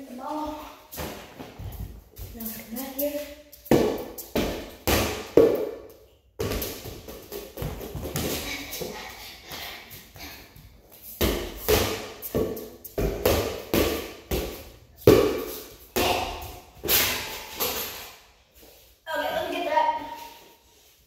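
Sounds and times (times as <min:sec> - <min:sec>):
rubber ball bouncing on concrete: 0:03.6 - 0:08.4, 0:11.2 - 0:16.4.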